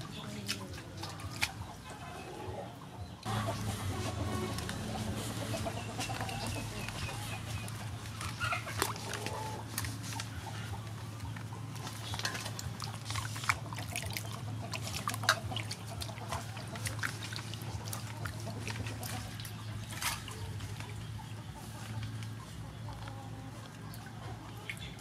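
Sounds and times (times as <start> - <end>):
water splashing in a steel bowl: 0.0 - 2.0, 3.2 - 21.1.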